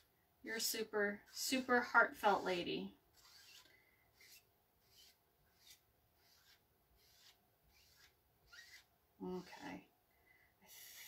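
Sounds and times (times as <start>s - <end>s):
squeegee scraping across screen: 1.2s - 9.8s.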